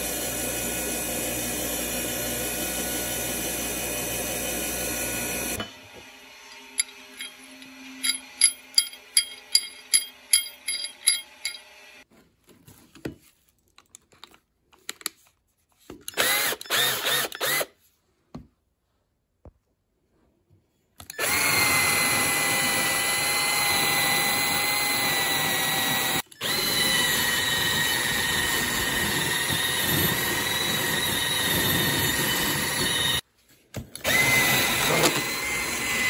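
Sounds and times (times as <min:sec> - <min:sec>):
drill with wire brush: 0:00.0 - 0:12.0, 0:16.1 - 0:17.8, 0:21.1 - 0:33.2, 0:34.0 - 0:36.0
power tool running: 0:00.0 - 0:12.0, 0:16.2 - 0:17.7, 0:21.2 - 0:33.2, 0:34.0 - 0:36.0.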